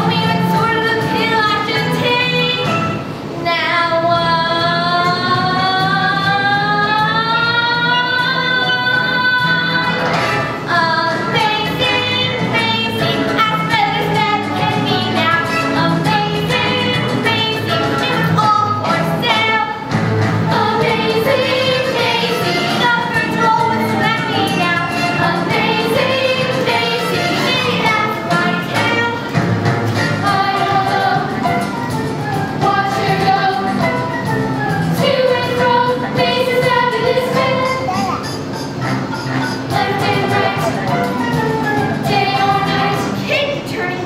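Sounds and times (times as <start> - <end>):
girls singing: 3.4 - 29.4, 30.0 - 31.4, 32.6 - 33.9, 35.0 - 37.7, 39.7 - 41.0, 42.0 - 44.0
musical accompaniment with beat: 9.7 - 43.2.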